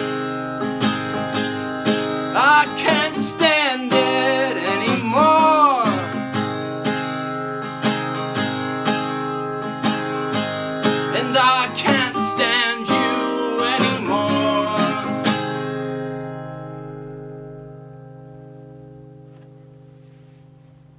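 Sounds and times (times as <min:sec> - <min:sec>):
acoustic guitar strumming chords: 0:00.0 - 0:20.9
wordless vocal line: 0:02.3 - 0:06.2, 0:11.1 - 0:15.3.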